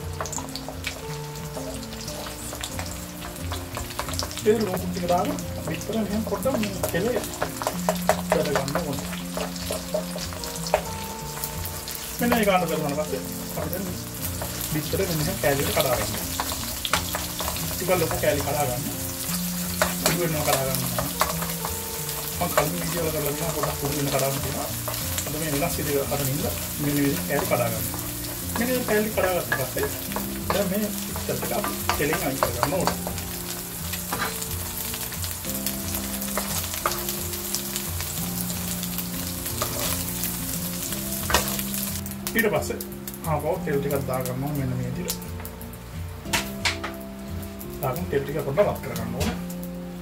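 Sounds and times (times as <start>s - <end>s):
eggs sizzling in hot oil: 0.0s - 50.0s
spatula scraping and tapping pan: 0.2s - 12.5s, 13.6s - 35.2s, 36.0s - 37.3s, 39.4s - 41.6s, 46.3s - 47.0s.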